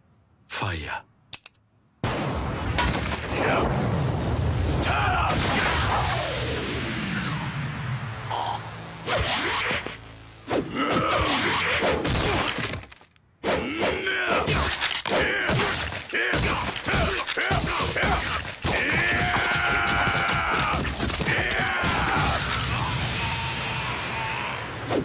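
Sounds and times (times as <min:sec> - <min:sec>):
man yelling and screaming: 0:04.8 - 0:05.6, 0:13.6 - 0:24.8.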